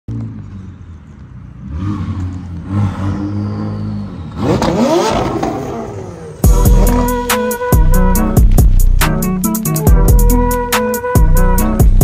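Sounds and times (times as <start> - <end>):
car engine revving: 0.1 - 9.7
loud music with a beat: 6.4 - 12.0.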